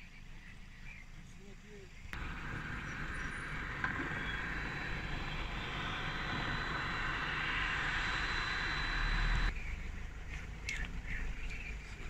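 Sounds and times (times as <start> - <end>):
low rumble: 2.2 - 10.3
road vehicle engine and tyres: 2.2 - 12.0.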